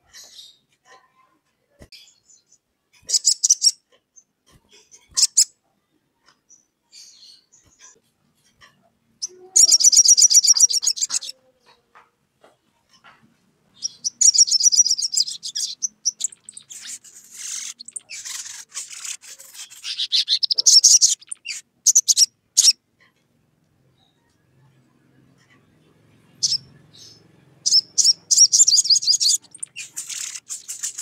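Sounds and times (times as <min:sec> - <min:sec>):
sharp bird chips: 0:03.0 - 0:03.8, 0:04.9 - 0:05.5, 0:09.2 - 0:11.4, 0:13.8 - 0:22.8, 0:26.4 - 0:31.0
bird chittering trills: 0:03.1 - 0:03.8, 0:09.2 - 0:11.5, 0:13.8 - 0:22.8, 0:26.3 - 0:31.0.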